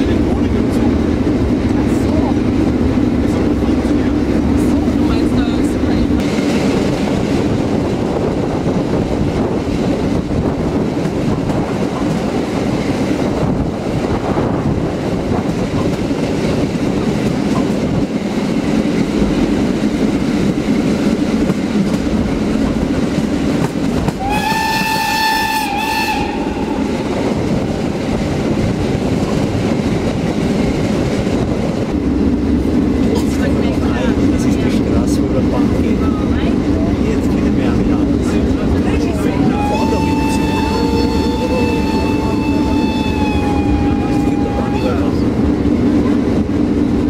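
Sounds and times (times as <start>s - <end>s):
train wheels rumbling on rails: 0.0s - 47.0s
steam whistle: 24.2s - 27.0s, 39.4s - 45.2s.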